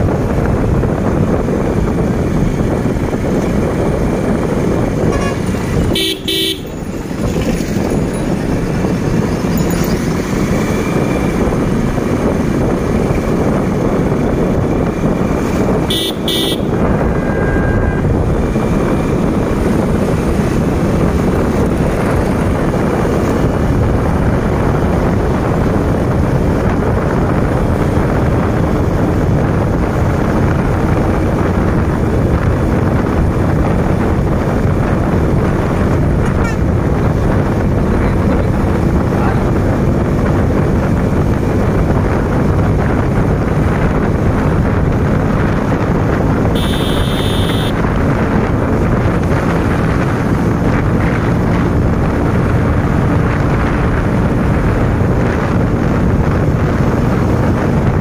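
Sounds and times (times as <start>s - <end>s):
motorcycle riding noise: 0.0s - 58.0s
horn toots: 5.0s - 6.8s, 15.9s - 18.1s, 46.5s - 47.8s.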